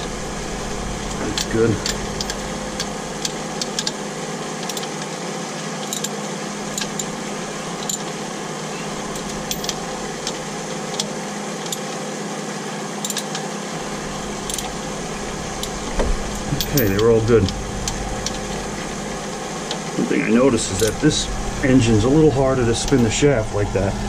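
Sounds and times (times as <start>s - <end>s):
machinery hum: 0.0s - 24.0s
ratchet wrench clicking: 4.6s - 5.0s, 5.8s - 6.1s, 13.0s - 13.4s.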